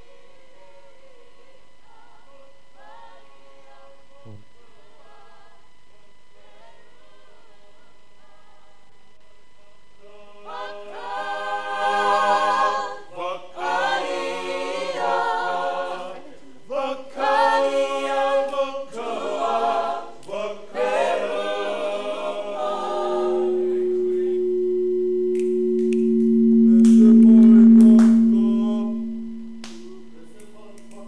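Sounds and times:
group singing unaccompanied: 0.0 - 8.8, 10.0 - 31.0
steady sustained tone: 21.2 - 30.4.

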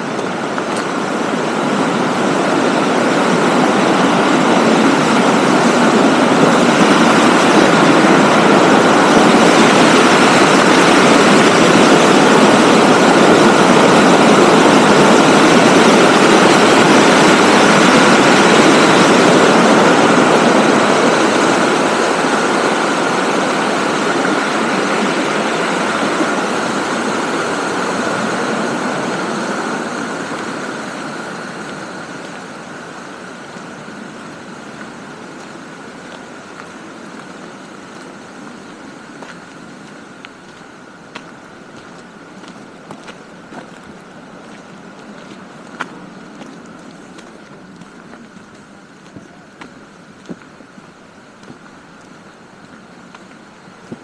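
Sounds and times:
stream rushing over rocks: 0.0 - 54.0.

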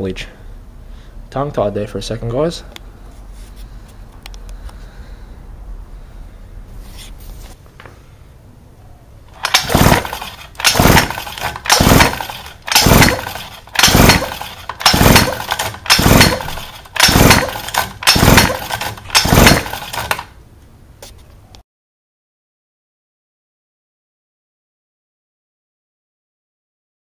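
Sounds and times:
pull starter whirring: 9.3 - 20.4.

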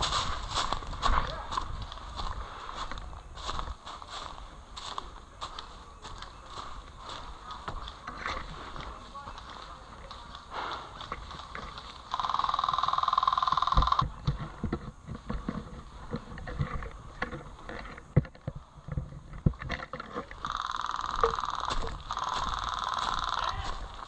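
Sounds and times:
footsteps on dry leaves: 0.0 - 14.5, 20.4 - 24.0
airsoft guns firing bursts: 12.1 - 14.0, 20.5 - 23.7.

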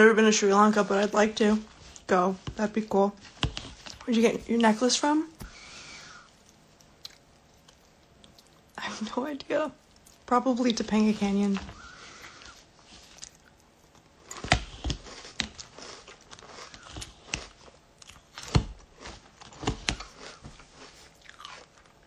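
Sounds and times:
person chewing crunchy cereal: 5.4 - 9.2, 11.8 - 22.0.

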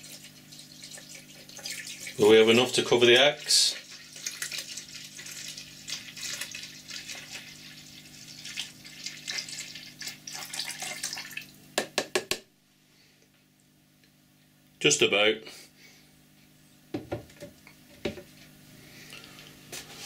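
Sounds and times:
liquid pouring and foaming: 0.0 - 11.6.

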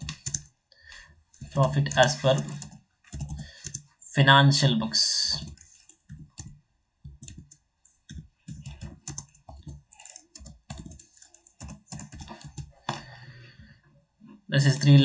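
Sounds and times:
typing on a keyboard: 0.0 - 0.5, 1.3 - 3.9, 5.4 - 13.0.

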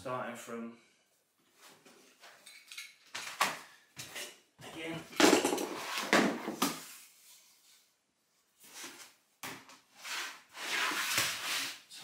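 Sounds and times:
vinyl planks rubbing and sliding: 9.9 - 12.0.

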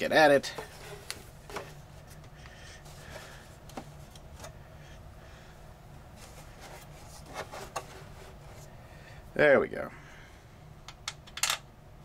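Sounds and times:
low steady hum: 0.0 - 12.0
hands handling plastic and metal: 6.2 - 8.7.

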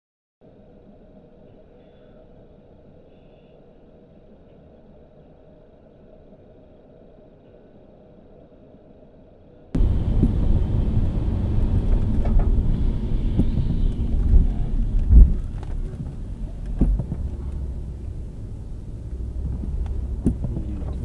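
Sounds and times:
road and engine rumble: 4.4 - 21.0
knocks and thumps: 9.8 - 21.0
rain on windshield: 9.8 - 21.0.

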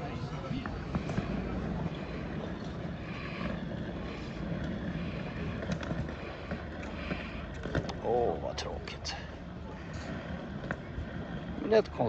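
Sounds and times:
outdoor rumble and hiss: 0.0 - 12.0.

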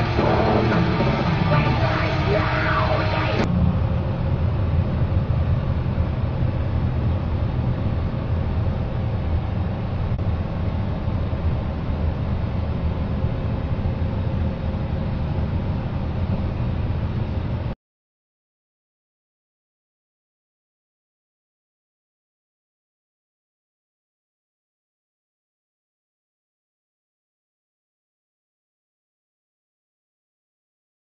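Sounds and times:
shifting tones: 0.0 - 4.3
truck engine and tyre rumble: 0.0 - 17.8.

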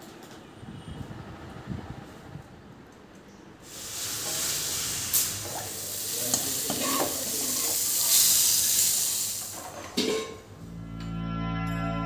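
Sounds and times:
hot oil and spices sizzling: 3.6 - 9.8.

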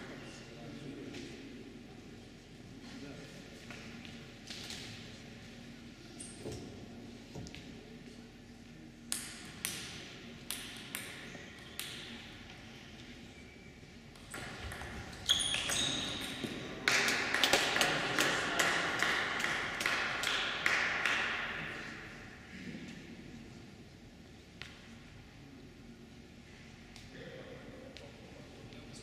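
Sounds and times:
table tennis ball bouncing: 9.1 - 12.2, 14.1 - 17.8
table tennis ball pinging off bats: 9.1 - 12.3, 14.2 - 17.8.

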